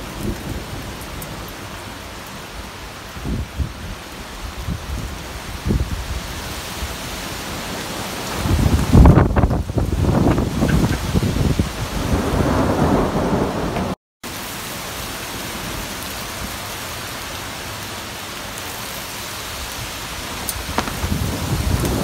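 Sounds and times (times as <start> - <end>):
rain hiss: 0.0 - 22.0
gusty wind buffeting microphone: 3.2 - 7.0, 8.3 - 14.0, 19.8 - 22.0.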